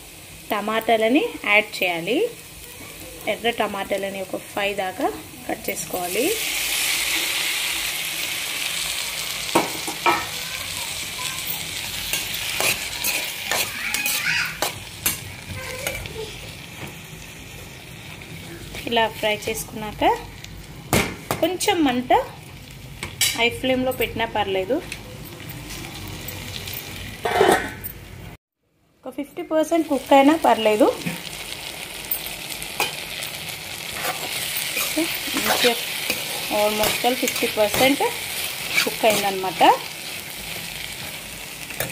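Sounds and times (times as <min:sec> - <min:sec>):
tomatoes sizzling in hot oil: 0:00.0 - 0:28.1, 0:29.0 - 0:41.9
spoon scraping a pan: 0:12.0 - 0:16.1, 0:33.8 - 0:41.9.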